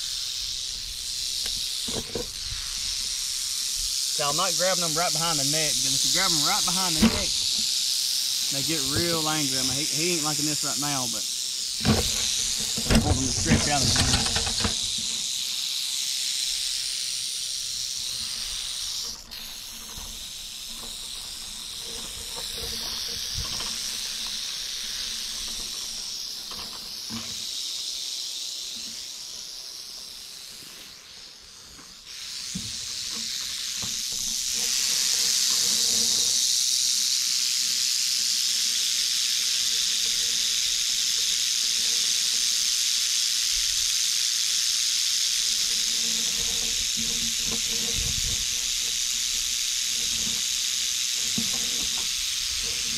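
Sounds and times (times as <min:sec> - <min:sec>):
rattlesnake rattling: 0:00.0 - 0:52.9.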